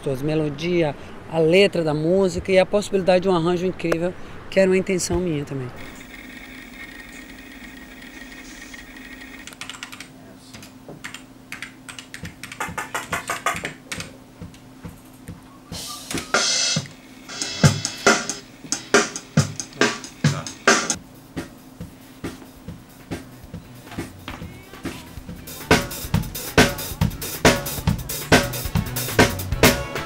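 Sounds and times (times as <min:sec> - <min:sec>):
bass drum and snare hits: 0:25.2 - 0:30.0.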